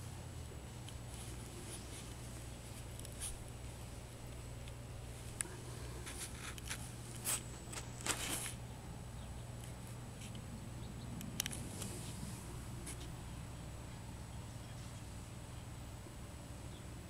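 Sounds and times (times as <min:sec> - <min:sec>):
low steady hum: 0:00.0 - 0:17.0
camera handling rustles and clicks: 0:06.0 - 0:08.6, 0:11.2 - 0:12.0.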